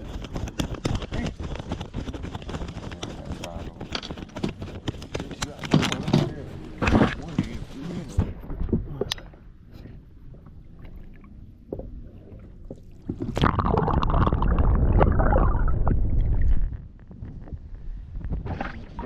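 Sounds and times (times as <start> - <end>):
water sloshing and gurgling: 5.6 - 19.0
water rushing over microphone: 12.4 - 17.0.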